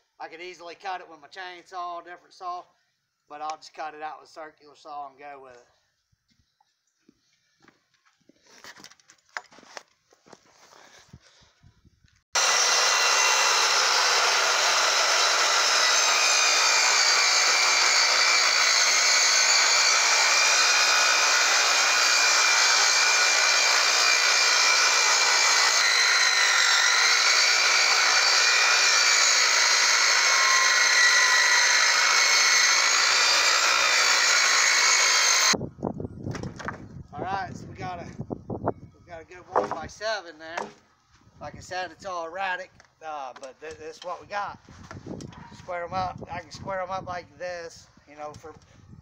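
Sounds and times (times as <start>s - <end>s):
circular saw cutting wood: 12.4s - 35.6s, 39.5s - 40.0s.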